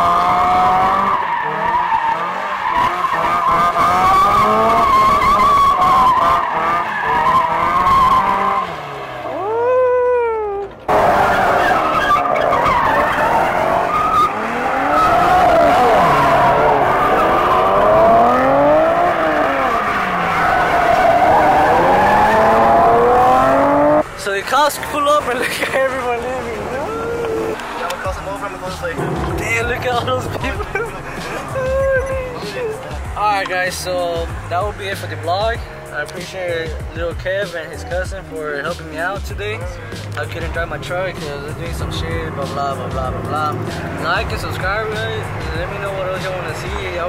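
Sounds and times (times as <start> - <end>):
car engines revving: 0.0 - 47.0
tyres squealing on pavement: 0.6 - 34.3.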